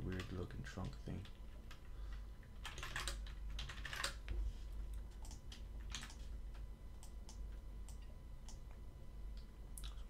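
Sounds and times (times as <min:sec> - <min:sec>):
keyboard typing: 0:02.6 - 0:04.3, 0:04.9 - 0:08.6
keyboard and mouse clicks: 0:04.9 - 0:08.6.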